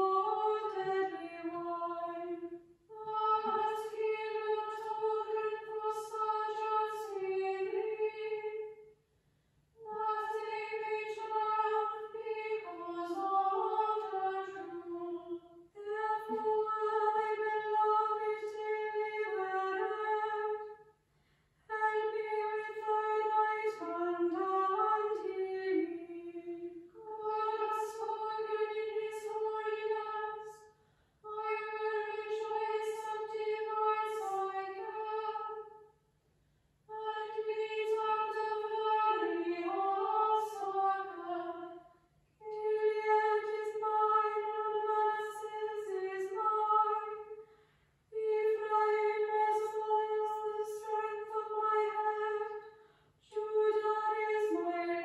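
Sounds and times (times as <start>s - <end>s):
female choir chanting a psalm: 0.0s - 8.8s, 9.8s - 20.8s, 21.7s - 30.6s, 31.3s - 35.8s, 36.9s - 41.8s, 42.4s - 47.4s, 48.1s - 55.0s.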